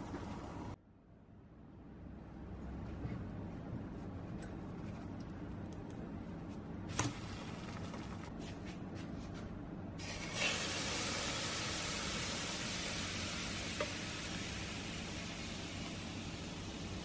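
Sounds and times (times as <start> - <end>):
food sizzling in frying pan: 10.0 - 17.0.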